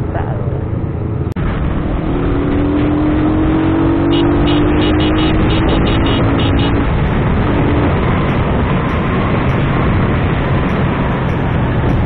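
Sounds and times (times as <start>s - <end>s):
truck drone: 0.0s - 12.0s
wind and road noise: 0.0s - 12.0s.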